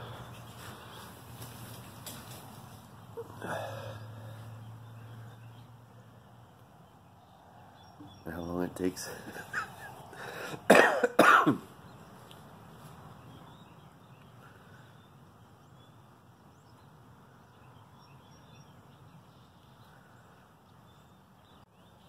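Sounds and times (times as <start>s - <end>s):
man coughing: 10.5s - 11.7s.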